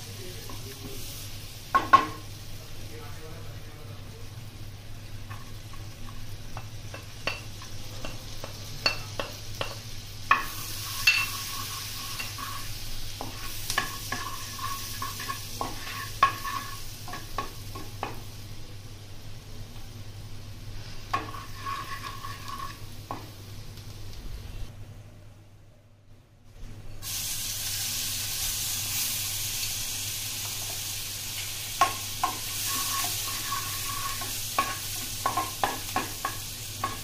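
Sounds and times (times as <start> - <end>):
food sizzling: 0.0 - 24.7, 26.7 - 37.0
utensil scraping a pan: 10.4 - 17.2, 20.9 - 22.9, 32.2 - 37.0.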